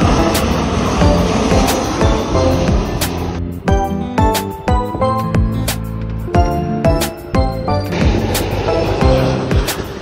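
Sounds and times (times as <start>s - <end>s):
low-flying jet airliner: 0.0s - 3.7s, 7.9s - 10.0s
background music with steady beat: 0.0s - 10.0s.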